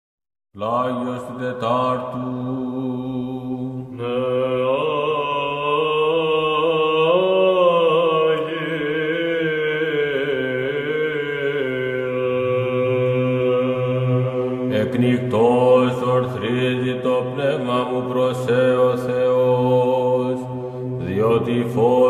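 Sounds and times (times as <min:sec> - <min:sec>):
men's choir chanting: 0:01.0 - 0:22.0.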